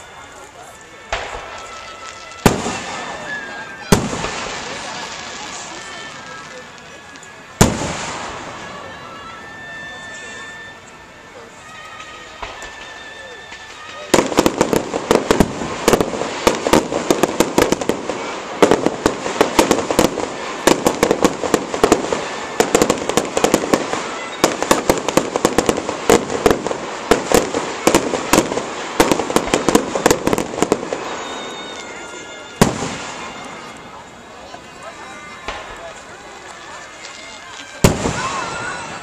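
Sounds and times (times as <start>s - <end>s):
fireworks bangs and crackles: 0.0s - 39.0s.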